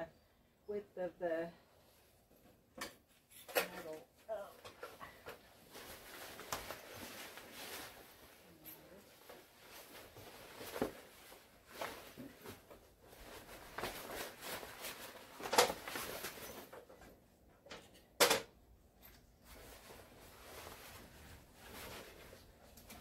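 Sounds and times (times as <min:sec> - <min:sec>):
light fabric handling: 0:04.3 - 0:16.8.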